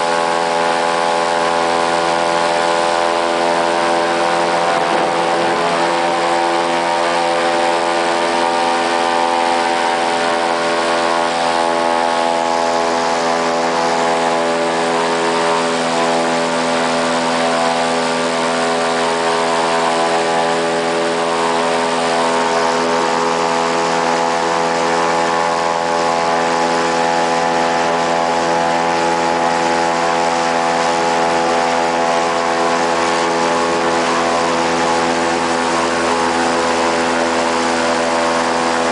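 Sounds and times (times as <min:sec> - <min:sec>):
airboat engine and propeller drone: 0:00.0 - 0:38.9.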